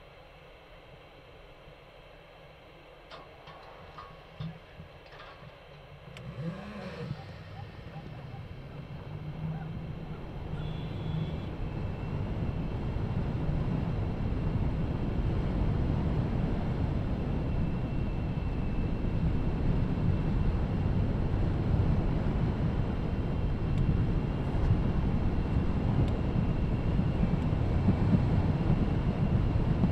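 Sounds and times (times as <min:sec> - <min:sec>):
vehicle driving on sand: 0:03.3 - 0:29.9.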